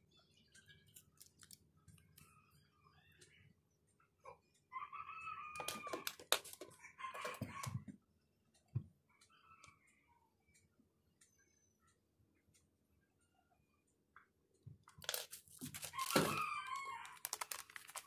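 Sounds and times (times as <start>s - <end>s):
rooster crowing: 4.7s - 6.2s, 7.0s - 7.8s, 15.9s - 17.4s.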